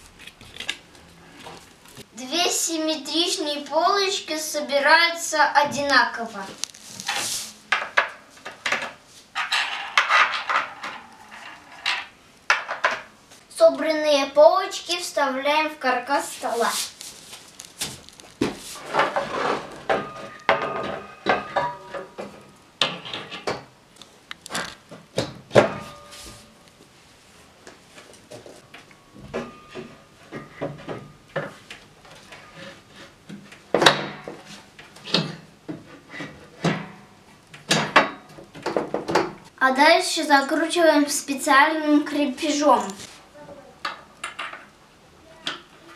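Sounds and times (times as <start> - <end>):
rustling: 6.3 - 7.7, 16.2 - 21.2
panel knocking and scraping: 7.7 - 13.1.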